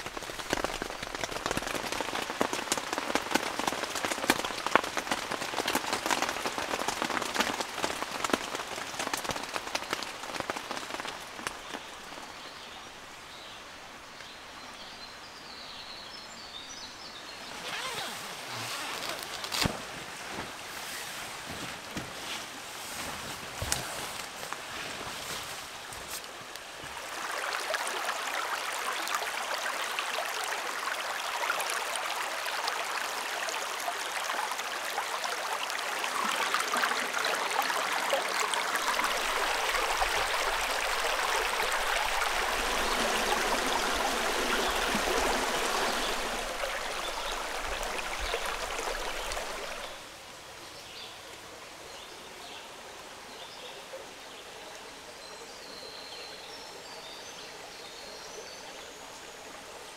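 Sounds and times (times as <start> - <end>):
river water rushing: 25.6 - 53.4.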